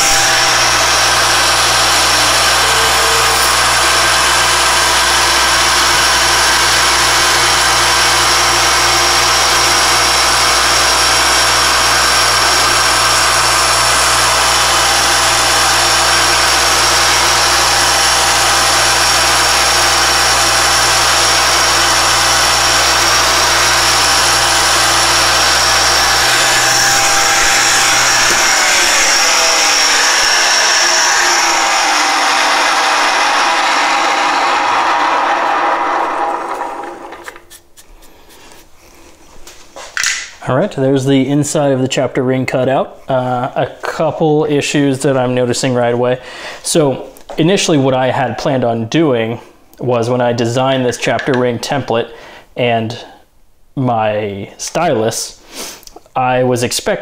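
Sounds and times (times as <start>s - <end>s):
low motor hum: 0.0s - 37.2s
milling machine spindle whine: 0.0s - 37.4s
spindle winding down: 0.0s - 37.8s.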